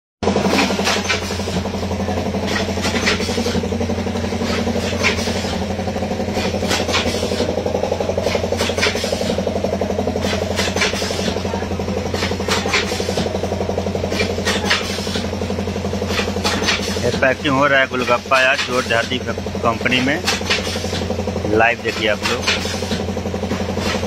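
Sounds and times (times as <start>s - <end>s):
packing machine hum and rattle: 0.2s - 24.0s.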